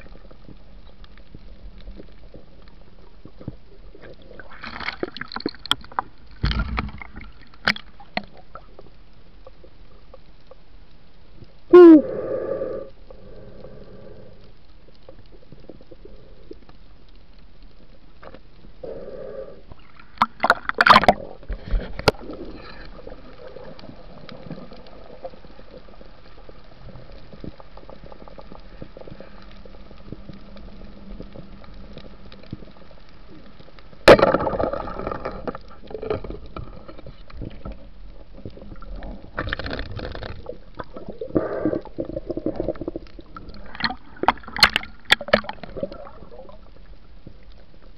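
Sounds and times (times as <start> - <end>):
underwater hiss: 12.0 - 14.6, 18.8 - 20.2, 40.8 - 46.5
rushing water noise: 19.9 - 24.6, 34.0 - 47.0.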